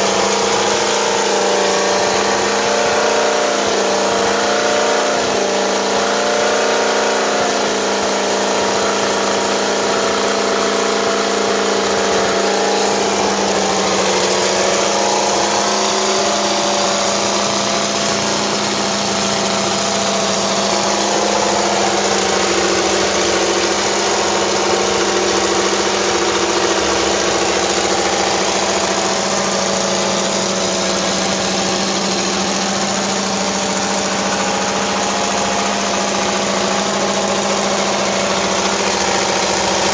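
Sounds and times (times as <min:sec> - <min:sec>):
racing car engine idling: 0:00.0 - 0:39.9.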